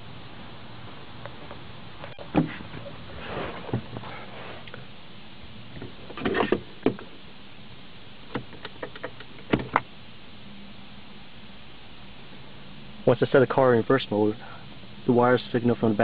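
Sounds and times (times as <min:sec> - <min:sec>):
faint steady hum: 0:00.0 - 0:16.0
clicks and knocks of handling: 0:08.3 - 0:09.9.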